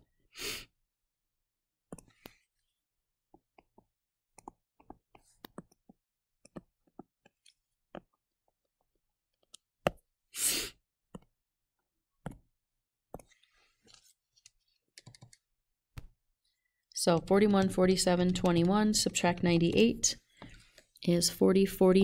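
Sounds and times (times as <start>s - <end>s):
stylus tapping tablet screen: 3.4s - 8.2s, 17.1s - 20.8s.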